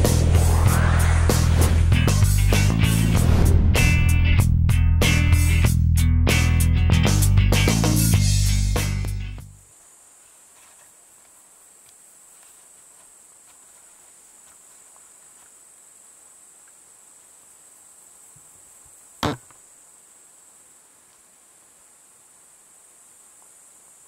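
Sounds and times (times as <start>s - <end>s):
insects chirring: 9.5s - 24.0s.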